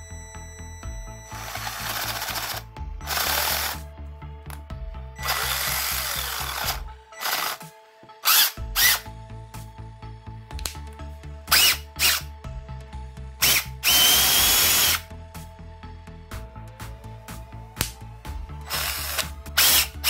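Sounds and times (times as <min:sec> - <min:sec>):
cordless drill motor whirring: 0:01.1 - 0:03.8, 0:05.2 - 0:09.0, 0:11.5 - 0:12.3, 0:13.4 - 0:15.0, 0:18.6 - 0:20.0.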